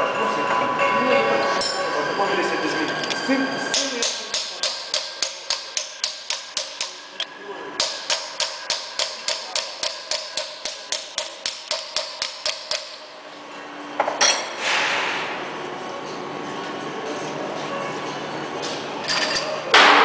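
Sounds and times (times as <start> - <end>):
hammer striking steel punch: 3.7 - 7.0, 7.8 - 13.0.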